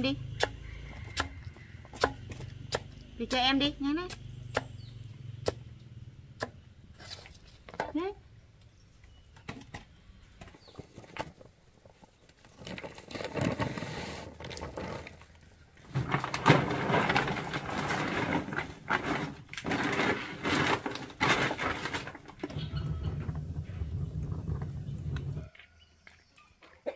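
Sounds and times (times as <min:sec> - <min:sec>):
plastic sack rustling: 0:10.7 - 0:25.4.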